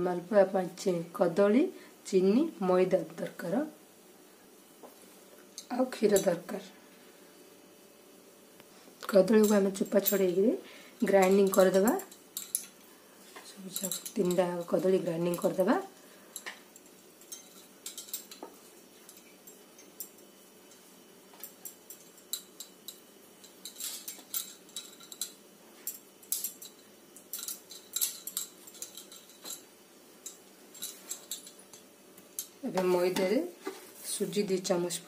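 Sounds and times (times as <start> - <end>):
bangles clinking: 11.0 - 12.8, 13.5 - 15.8, 16.7 - 32.7.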